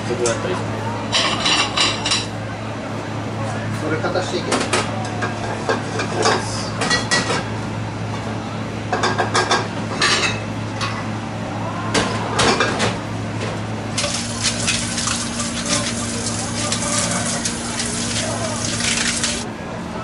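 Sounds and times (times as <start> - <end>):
dishes and cutlery clattering: 9.0 - 11.0
tap running into sink: 14.0 - 19.4.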